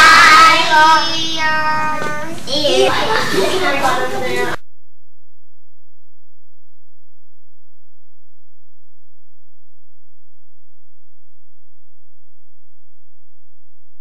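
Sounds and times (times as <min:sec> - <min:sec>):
low electrical hum: 0:00.0 - 0:04.6.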